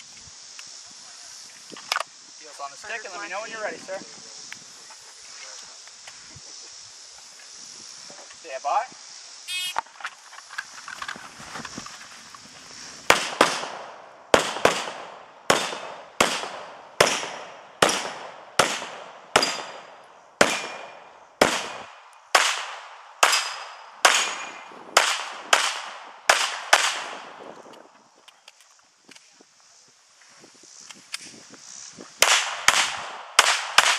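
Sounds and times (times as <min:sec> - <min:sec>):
pistol shots: 0:13.1 - 0:27.2, 0:32.2 - 0:33.9.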